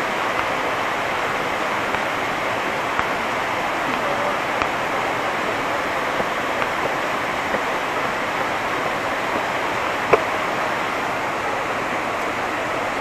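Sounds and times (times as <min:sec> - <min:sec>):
waterfall rushing: 0:00.0 - 0:13.0
sharp tap: 0:00.3 - 0:00.6.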